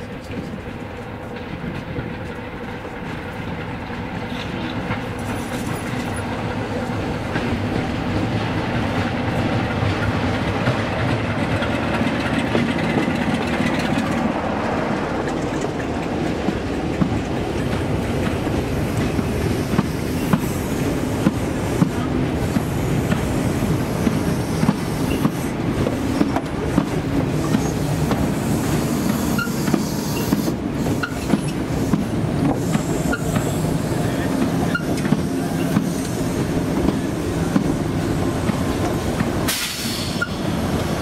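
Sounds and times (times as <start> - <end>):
diesel train passing: 0.0 - 41.0
wheels clicking over rail joints: 7.2 - 20.5.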